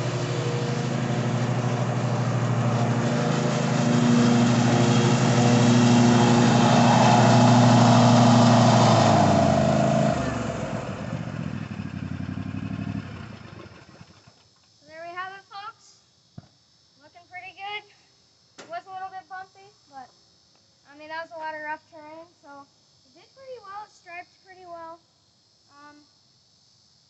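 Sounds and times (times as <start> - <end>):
mower engine running: 0.0 - 14.4.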